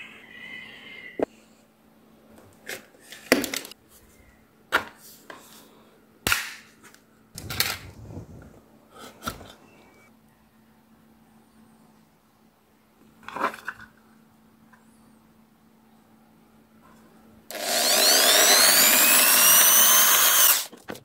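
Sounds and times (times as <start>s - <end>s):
faint hum: 7.0s - 13.2s.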